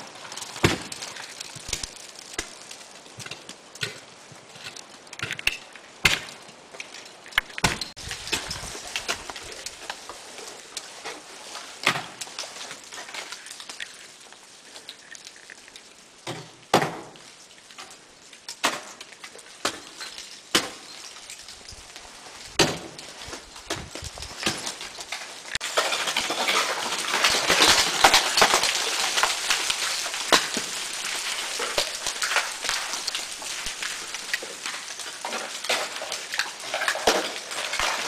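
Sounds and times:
ice axe striking ice: 0:00.0 - 0:06.5, 0:07.3 - 0:09.8, 0:11.8 - 0:12.2, 0:16.2 - 0:17.2, 0:18.5 - 0:21.5, 0:22.6 - 0:38.0
ice crackling and scraping: 0:00.0 - 0:16.6, 0:17.2 - 0:38.0.

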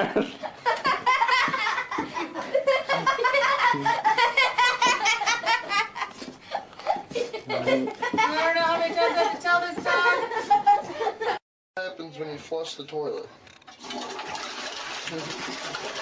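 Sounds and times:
person laughing hard: 0:00.0 - 0:08.4.

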